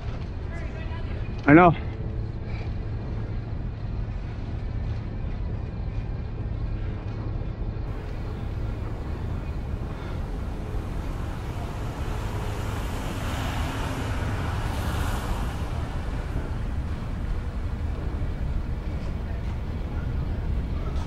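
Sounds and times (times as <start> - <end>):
wind rumble on microphone: 0.0 - 21.0
city traffic noise: 7.3 - 21.0.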